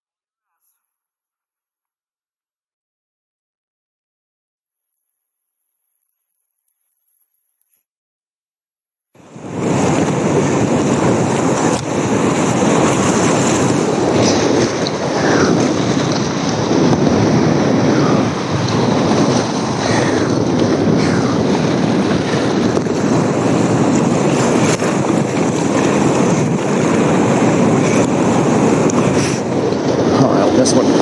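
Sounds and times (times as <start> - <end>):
paddle splashes: 9.2 - 31.0
whitewater rushing: 9.2 - 31.0.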